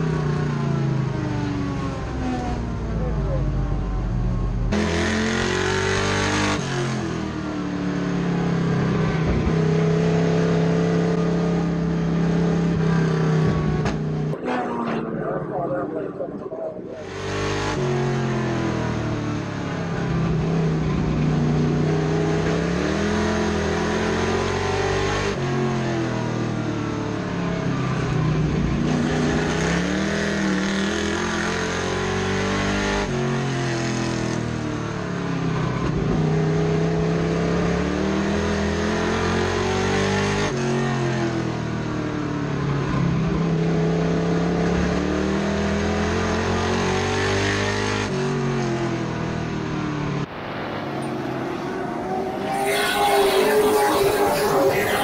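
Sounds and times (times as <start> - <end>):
wind and road noise: 0.0 - 31.2, 41.2 - 55.0
truck engine accelerating: 48.9 - 55.0.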